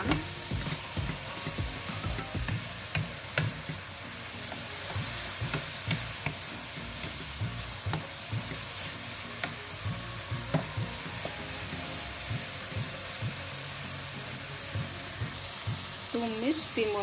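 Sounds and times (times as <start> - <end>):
wooden spatula scraping wok: 0.0 - 11.5
food sizzling frying: 0.0 - 17.0.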